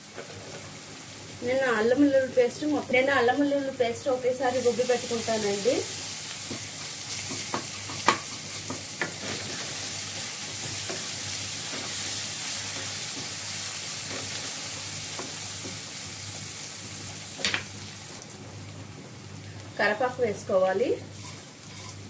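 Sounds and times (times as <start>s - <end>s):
onions sizzling in hot oil: 0.0s - 22.0s.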